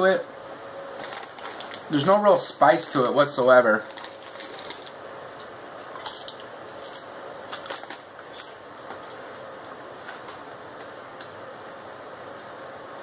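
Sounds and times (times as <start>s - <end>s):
potato chips crunching: 1.0s - 2.2s, 3.8s - 5.0s, 5.8s - 9.1s, 10.0s - 10.9s.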